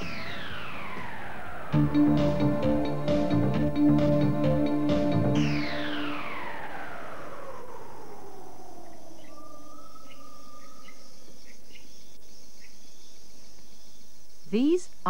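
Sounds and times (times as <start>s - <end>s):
insect drone: 0.0s - 3.3s, 5.4s - 15.0s
electronic swoosh: 0.0s - 4.5s.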